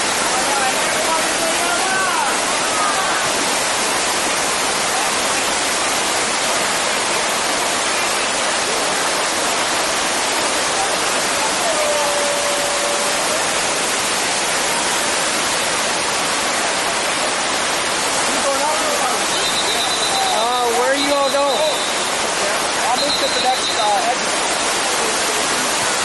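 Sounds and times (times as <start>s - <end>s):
waterfall roaring: 0.0s - 26.0s.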